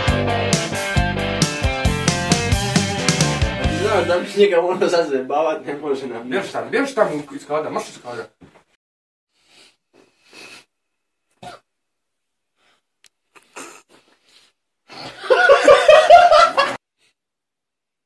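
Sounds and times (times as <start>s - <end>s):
person laughing loudly: 15.0s - 16.8s.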